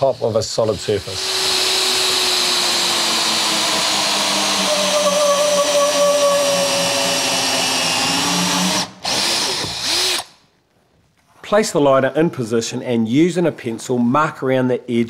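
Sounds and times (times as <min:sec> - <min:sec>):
power drill with hole saw cutting: 0:00.0 - 0:10.4.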